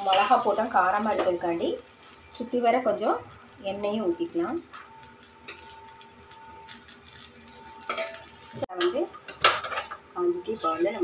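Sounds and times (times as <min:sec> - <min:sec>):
spoon clattering on metal cookware: 0:00.0 - 0:00.5, 0:07.9 - 0:11.0.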